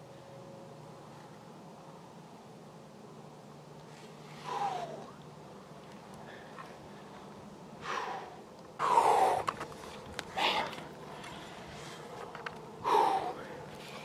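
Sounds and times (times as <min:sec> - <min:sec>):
person breathing hard: 0:12.8 - 0:13.7.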